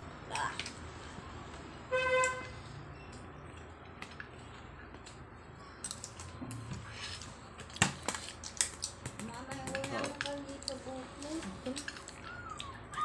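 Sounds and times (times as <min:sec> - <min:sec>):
spoons clicking on plastic tub: 0:08.6 - 0:10.8.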